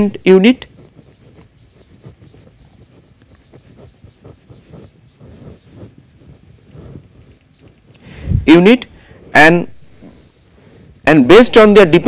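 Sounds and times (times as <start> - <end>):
marker scratching on whiteboard: 0.0 - 12.0.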